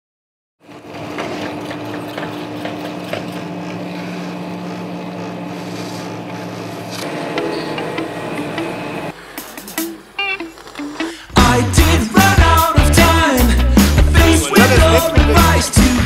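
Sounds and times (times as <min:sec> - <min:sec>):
machine hum with low tones: 0:00.6 - 0:09.2.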